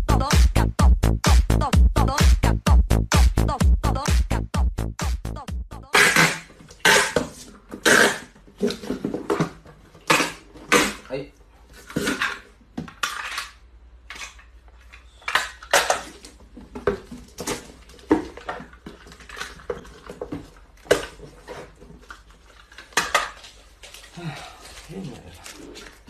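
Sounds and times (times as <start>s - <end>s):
tape cut on dispenser teeth: 5.9s - 8.3s
packing tape ripping: 5.9s - 8.4s.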